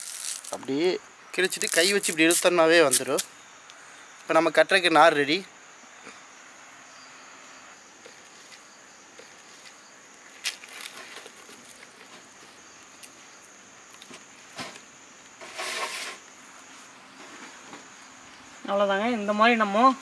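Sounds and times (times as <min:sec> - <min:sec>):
leaves crackling and rustling: 0:00.0 - 0:03.4, 0:07.9 - 0:20.0
high insect drone: 0:00.0 - 0:20.0.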